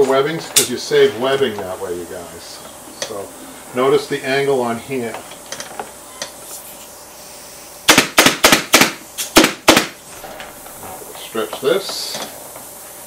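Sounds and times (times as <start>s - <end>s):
staple gun firing: 7.9s - 10.0s.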